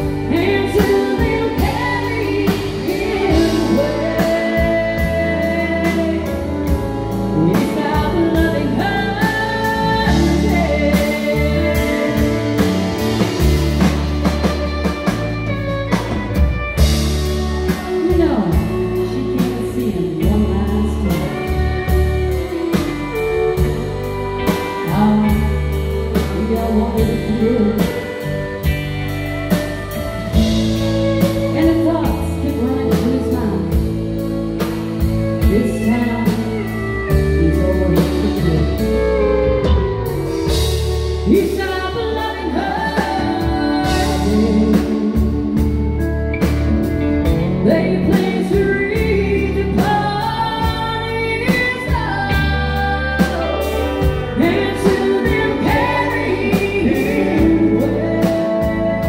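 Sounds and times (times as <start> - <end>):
woman singing: 0.0 - 46.1, 46.7 - 59.0
drums: 0.0 - 59.0
electric bass guitar: 0.0 - 59.0
fiddle: 0.0 - 59.0.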